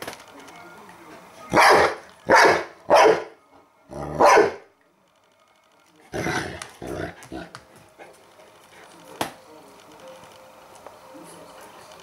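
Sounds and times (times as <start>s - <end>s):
dog barking: 1.5s - 3.4s, 4.2s - 4.7s.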